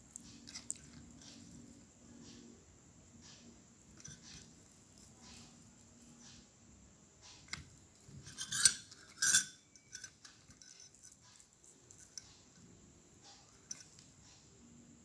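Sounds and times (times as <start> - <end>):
plate clattering scrapes: 7.4 - 11.1.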